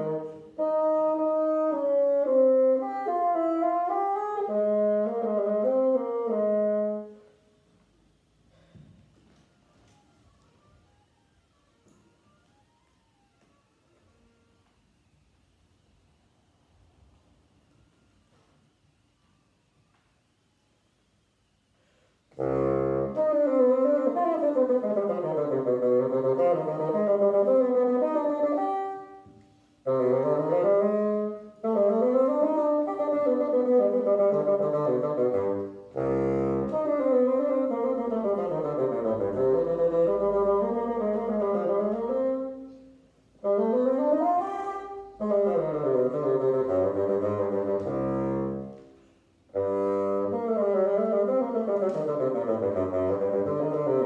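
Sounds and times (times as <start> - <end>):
solo bassoon playing: 0.0 - 7.5, 22.3 - 54.0.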